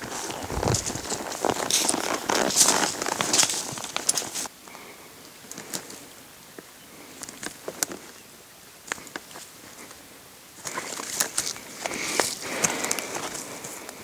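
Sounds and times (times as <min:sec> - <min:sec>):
footsteps crunching dry grass: 0:00.0 - 0:04.5, 0:10.6 - 0:14.0.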